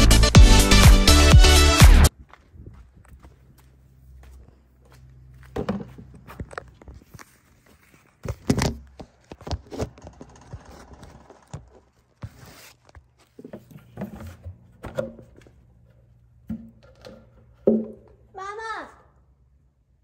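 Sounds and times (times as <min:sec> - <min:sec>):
footsteps: 0:02.1 - 0:14.4
knocks and thumps of handling: 0:05.5 - 0:07.3, 0:08.1 - 0:15.6, 0:16.4 - 0:18.2.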